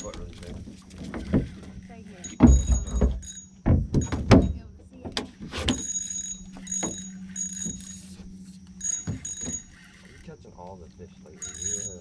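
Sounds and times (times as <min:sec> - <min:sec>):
fishing reel drag buzzing: 0:00.0 - 0:03.5, 0:05.3 - 0:12.0
knocks: 0:02.3 - 0:05.8, 0:09.0 - 0:09.7.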